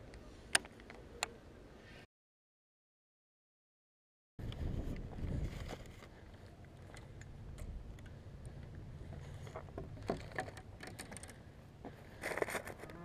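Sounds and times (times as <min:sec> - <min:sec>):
fishing rods clicking on wooden bench: 0:10.0 - 0:11.4.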